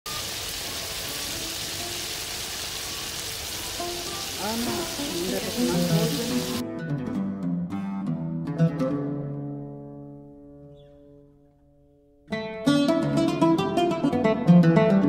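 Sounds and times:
chicken sizzling in oil: 0:00.1 - 0:06.6
plucked-string music: 0:03.6 - 0:15.0.

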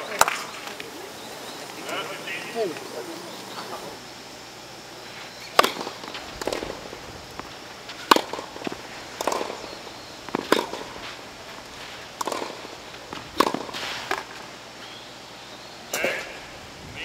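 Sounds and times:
tennis ball hit with rackets: 0:05.5 - 0:14.4.

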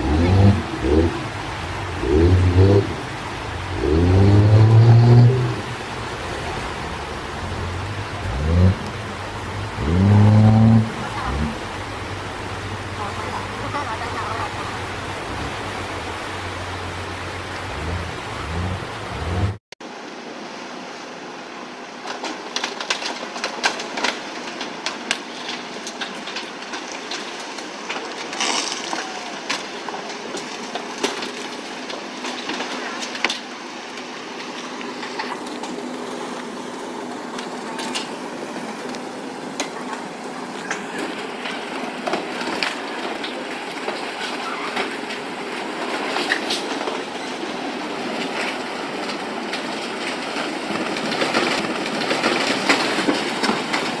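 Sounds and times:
boats cracking and crunching: 0:00.0 - 0:19.6, 0:22.0 - 0:54.0
churned water rushing: 0:00.0 - 0:22.0, 0:24.2 - 0:54.0
low steady hum: 0:00.0 - 0:22.0.

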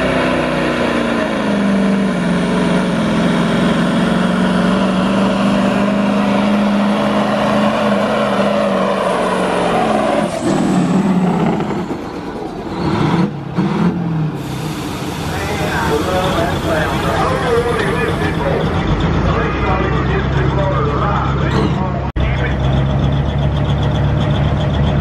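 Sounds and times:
diesel truck engine under load: 0:00.0 - 0:25.0.

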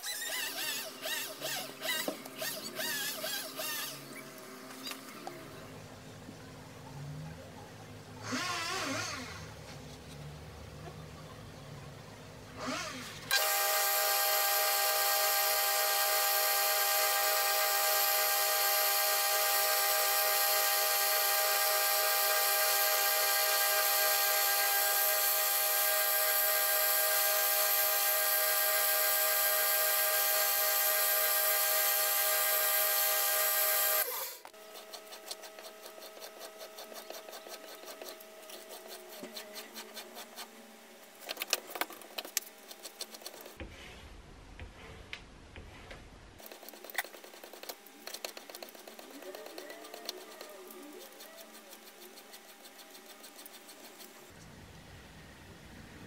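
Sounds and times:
belt grinder whining: 0:12.6 - 0:39.7
blade rubbing on leather strop: 0:34.7 - 0:40.5, 0:46.4 - 0:54.3.

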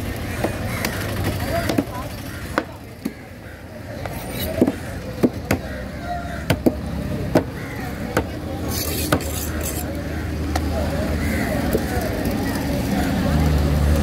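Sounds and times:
street noise: 0:00.0 - 0:14.0.

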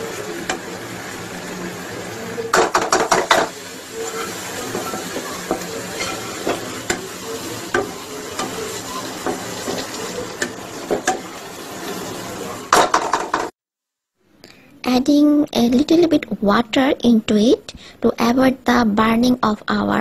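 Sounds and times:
paste sizzling in a pan: 0:00.0 - 0:13.5
wooden spatula scraping a pan: 0:03.0 - 0:13.5.

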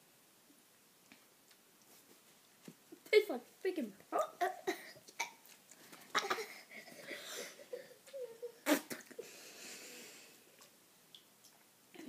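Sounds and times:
girl coughing and gasping: 0:04.2 - 0:05.4
breathy blowing bursts: 0:06.4 - 0:10.6.

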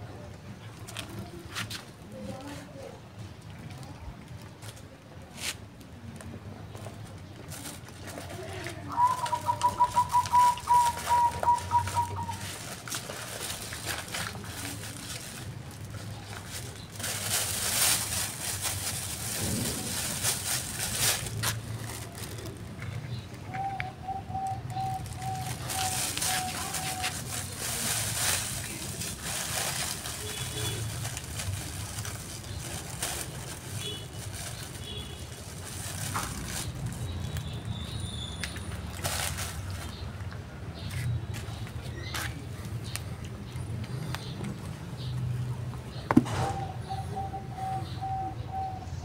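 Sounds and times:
bird calling short notes: 0:08.9 - 0:12.4
high bird chirps: 0:09.0 - 0:12.4.

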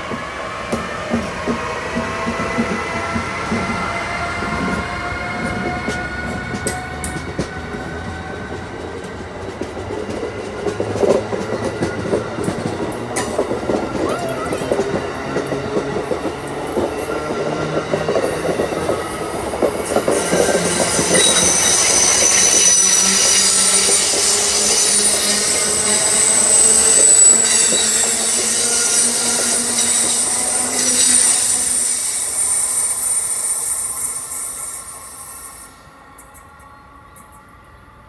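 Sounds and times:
train wheels clattering over rails: 0:00.0 - 0:34.4
high-pitched wheel squeal: 0:20.3 - 0:35.7.

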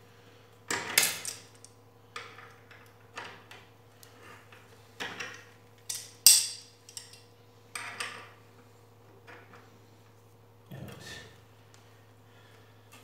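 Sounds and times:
pliers clinking and scraping on screw: 0:05.9 - 0:07.2.

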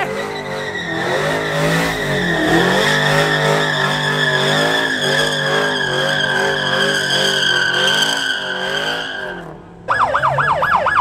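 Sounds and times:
car engine revving: 0:00.0 - 0:11.0
tires squealing: 0:00.0 - 0:11.0.

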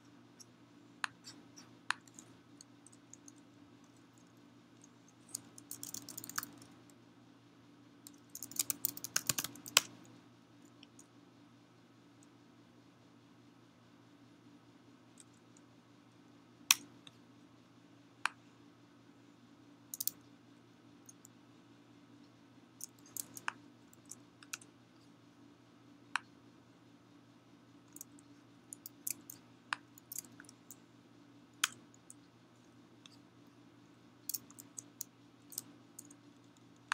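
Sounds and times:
mouse clicks: 0:00.4 - 0:06.7, 0:08.0 - 0:10.1, 0:16.7 - 0:17.2, 0:19.9 - 0:20.2, 0:22.8 - 0:24.7, 0:31.6 - 0:32.2
computer keys tapping: 0:01.0 - 0:06.9, 0:08.1 - 0:10.1, 0:20.0 - 0:20.2, 0:22.8 - 0:24.7, 0:27.9 - 0:30.7, 0:31.6 - 0:32.2, 0:34.3 - 0:36.2.

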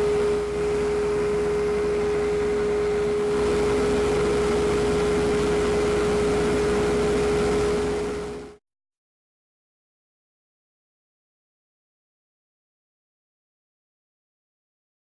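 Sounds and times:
wood lathe motor whining: 0:00.0 - 0:08.6.

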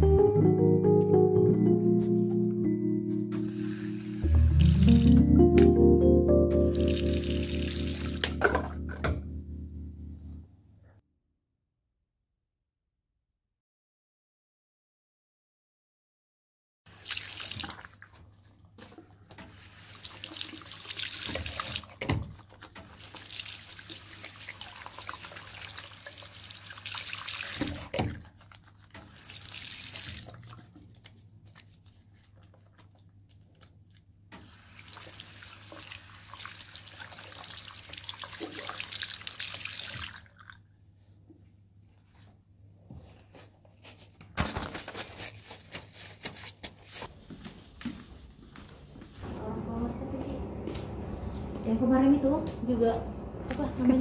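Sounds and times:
tap water running into sink: 0:19.3 - 0:28.2, 0:34.4 - 0:40.4.

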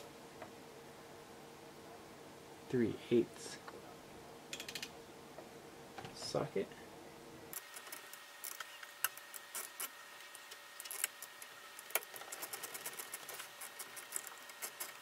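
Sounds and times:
socket ratchet clicking: 0:04.5 - 0:04.9.

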